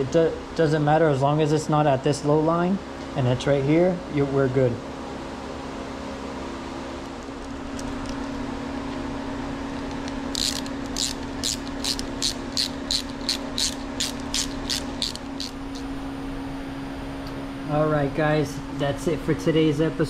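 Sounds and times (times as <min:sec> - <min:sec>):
fan humming: 0:00.0 - 0:20.0
ratchet clicking: 0:10.3 - 0:15.9.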